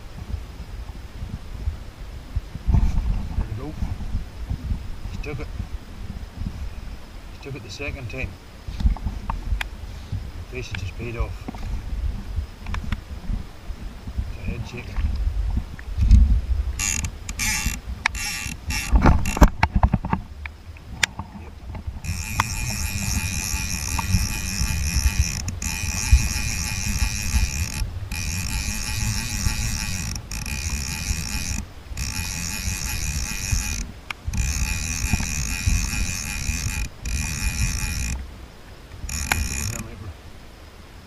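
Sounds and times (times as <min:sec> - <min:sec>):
fishing reel drag buzzing: 0:16.8 - 0:19.5, 0:22.0 - 0:38.2, 0:39.0 - 0:40.0.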